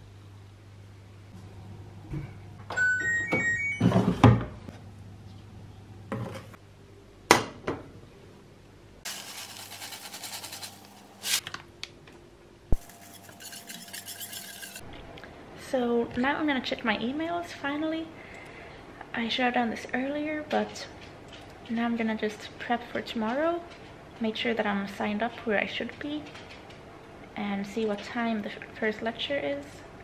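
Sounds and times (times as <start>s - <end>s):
whisk stirring thick sauce: 12.8s - 14.8s.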